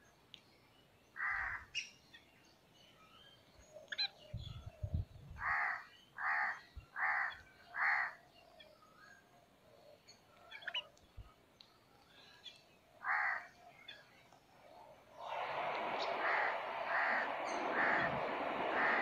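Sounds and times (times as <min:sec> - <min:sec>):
crow cawing: 0:01.2 - 0:01.6, 0:05.4 - 0:08.2, 0:13.0 - 0:13.5, 0:16.2 - 0:18.1, 0:18.8 - 0:19.0.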